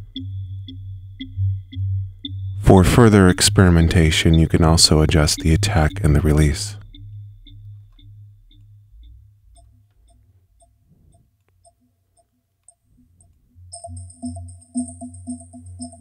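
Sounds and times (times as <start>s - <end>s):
pitched electronic blips: 0.0s - 10.3s, 13.0s - 16.0s
low hum: 0.0s - 11.2s.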